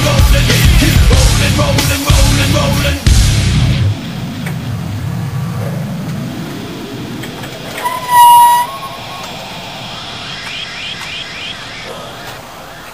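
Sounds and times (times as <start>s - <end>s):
forklift engine rumble: 4.0s - 10.3s
forklift horn beep: 7.8s - 9.5s.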